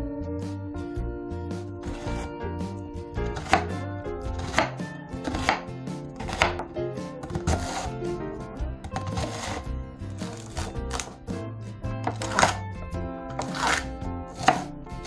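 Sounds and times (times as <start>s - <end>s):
background music: 0.0s - 15.0s
knife chopping on wooden board: 1.8s - 2.3s, 3.3s - 8.0s, 8.8s - 11.2s, 12.0s - 12.6s, 13.3s - 14.7s
knife slicing onion: 1.8s - 2.3s, 3.3s - 8.2s, 8.9s - 11.3s, 12.0s - 12.6s, 13.3s - 14.8s.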